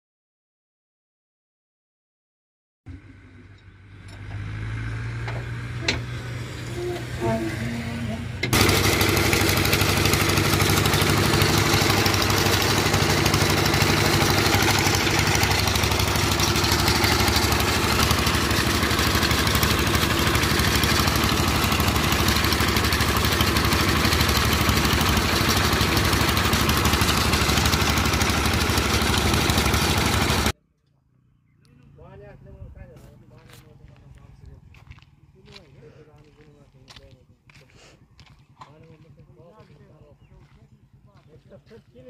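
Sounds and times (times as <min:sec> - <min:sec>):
small stationary engine running: 0:05.8 - 0:30.5.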